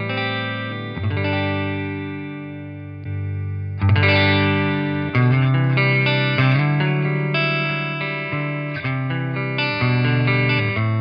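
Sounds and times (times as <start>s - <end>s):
electric guitar chords strummed: 0.0s - 11.0s.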